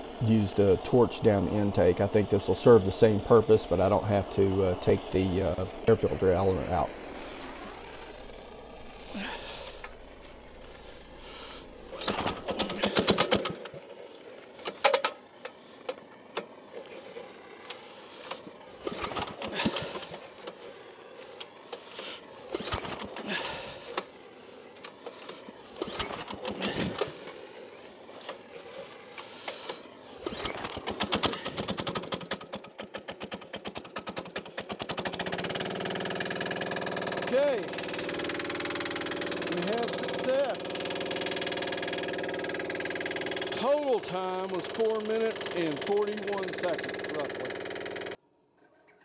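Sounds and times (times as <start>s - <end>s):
diesel engine running: 0.0s - 13.8s, 33.9s - 48.2s
diesel engine cranking: 0.0s - 13.9s, 14.5s - 20.7s, 21.4s - 24.1s, 24.8s - 27.4s, 28.1s - 48.2s.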